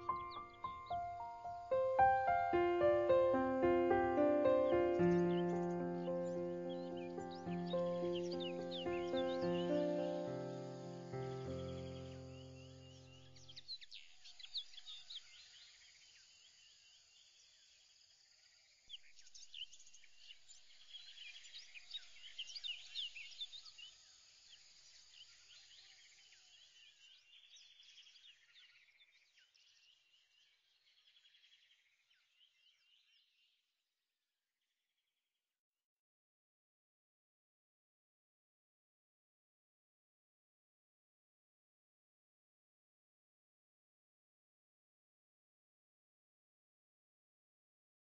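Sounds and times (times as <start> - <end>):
small birds chirping: 0.0 - 17.9, 18.8 - 33.6.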